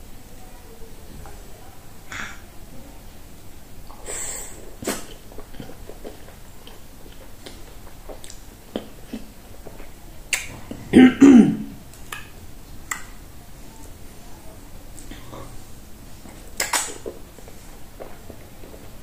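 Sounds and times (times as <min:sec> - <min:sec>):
wet lip smacks and clicks: 0:04.8 - 0:08.9, 0:10.3 - 0:10.6, 0:16.5 - 0:17.2
throaty vocal noise: 0:10.5 - 0:11.8.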